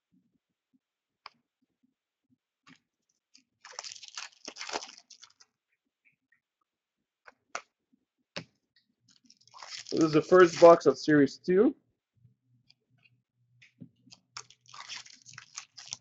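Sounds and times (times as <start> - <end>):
packaging crinkling and tearing: 3.6 - 5.5, 9.1 - 10.9, 14.1 - 16.0.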